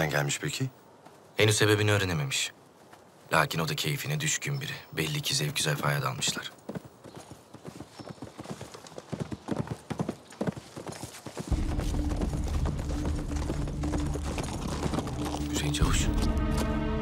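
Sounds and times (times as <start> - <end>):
horse hooves clopping on dirt: 5.6 - 16.8
low music drone: 11.5 - 17.0.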